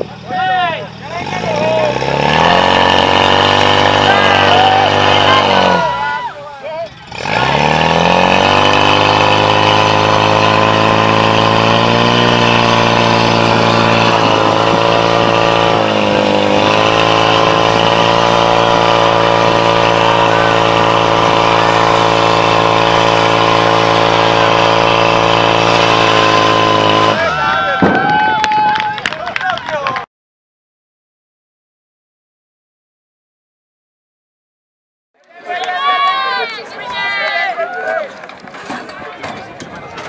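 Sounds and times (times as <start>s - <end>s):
fire pump engine at full throttle: 0.0s - 28.2s.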